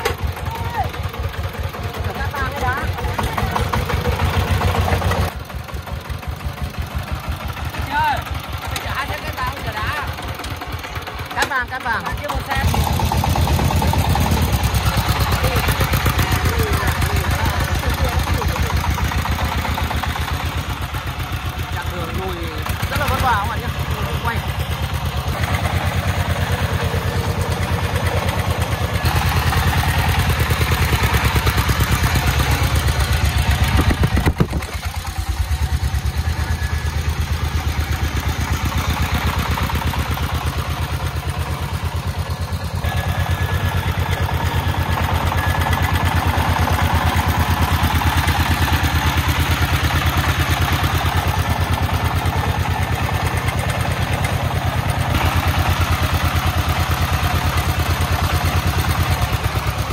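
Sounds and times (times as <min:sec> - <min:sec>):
diesel engine chugging: 0:00.0 - 0:59.9.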